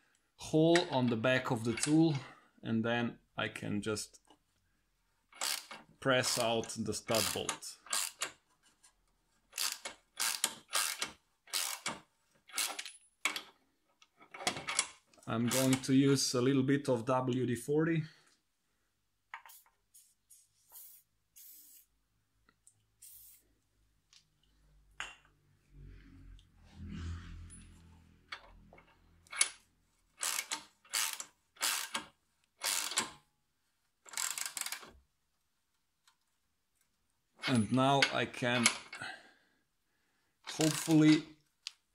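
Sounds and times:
ratchet wrench clicking: 0:05.4 - 0:05.8, 0:07.2 - 0:08.4, 0:09.6 - 0:13.4, 0:30.2 - 0:33.1, 0:34.1 - 0:34.9, 0:40.5 - 0:41.0.

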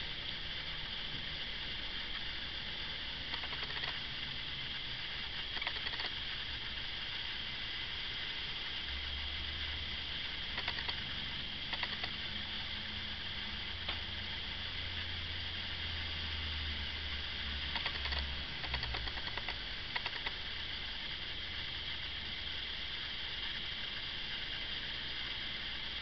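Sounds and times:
recording hiss: 0:00.0 - 0:26.0
faint crackles: 0:03.2 - 0:08.6, 0:10.4 - 0:11.1, 0:11.7 - 0:12.2.

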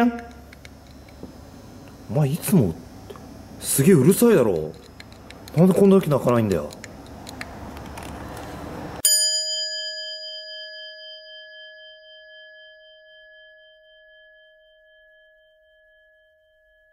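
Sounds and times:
struck metal bell ringing: 0:09.0 - 0:16.9.

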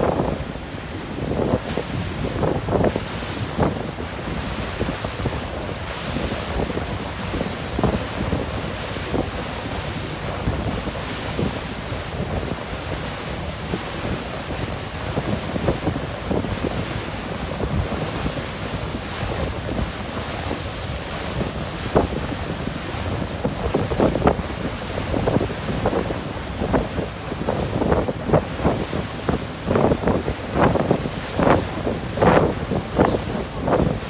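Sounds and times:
rush of wind and sea water: 0:00.0 - 0:34.0
wind buffeting microphone: 0:00.0 - 0:34.0.

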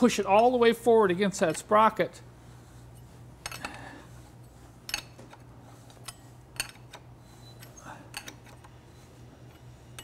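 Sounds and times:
low steady hum: 0:00.0 - 0:10.0
metal tools clicking: 0:03.4 - 0:03.8, 0:04.8 - 0:05.4, 0:06.0 - 0:08.8.

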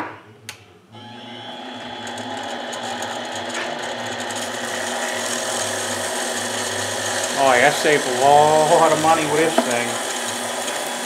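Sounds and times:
lathe motor whining: 0:01.0 - 0:11.0.

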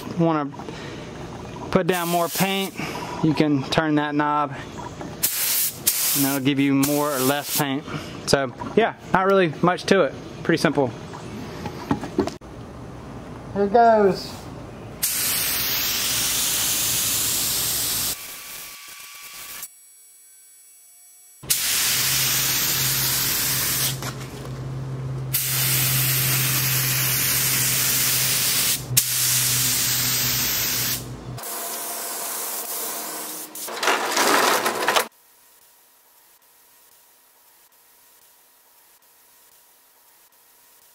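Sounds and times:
spray gun hissing: 0:02.0 - 0:02.8, 0:05.2 - 0:07.7, 0:15.0 - 0:18.2, 0:21.5 - 0:24.0, 0:25.3 - 0:33.7.

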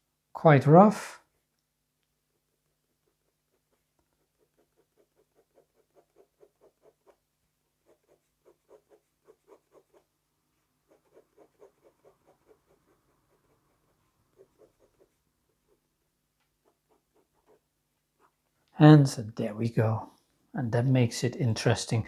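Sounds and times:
pen scratching on paper: 0:02.4 - 0:10.2, 0:10.8 - 0:15.9, 0:16.5 - 0:18.4.

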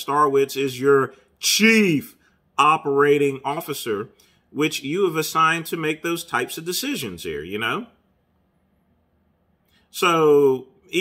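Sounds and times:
man speaking: 0:00.0 - 0:08.0, 0:09.9 - 0:11.0.

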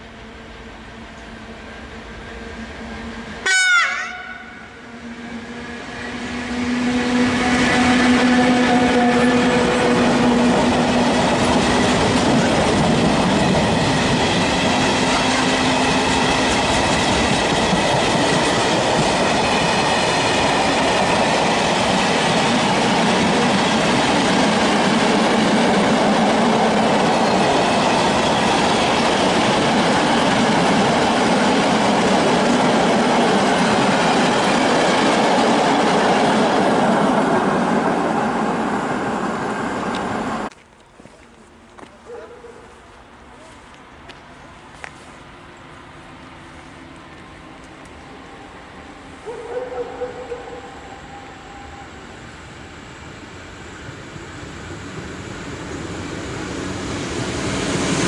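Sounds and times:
locomotive hum: 0:00.0 - 0:58.0
train horn blast: 0:03.4 - 0:10.6
wagons rumbling on rails: 0:04.3 - 0:40.5.

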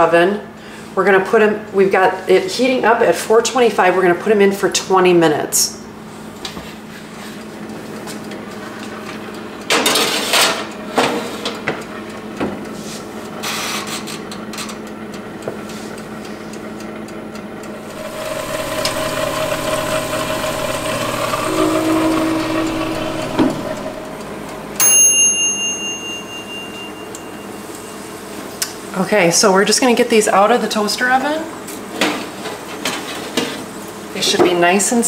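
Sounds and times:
toaster oven hum: 0:00.0 - 0:35.0
timer bell ding: 0:24.8 - 0:28.1.

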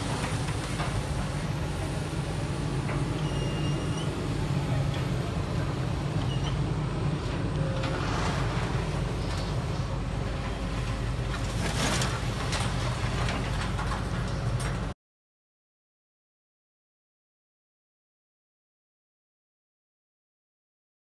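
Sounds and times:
heavy diesel engine running: 0:00.0 - 0:14.9
car body crashing onto scrap pile: 0:11.4 - 0:13.4.

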